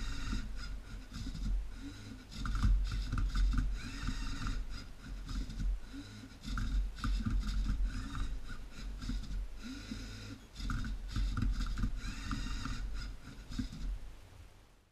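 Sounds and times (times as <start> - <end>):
servo motors whirring: 0.0 - 14.0.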